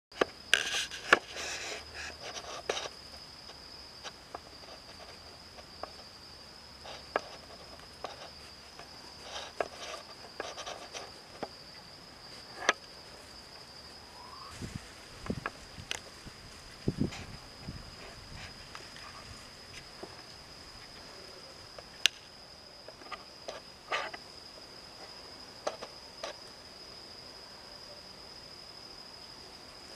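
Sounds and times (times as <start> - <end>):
high-pitched insect trill: 0.1 - 29.9
rustling in dry leaves: 14.2 - 20.8.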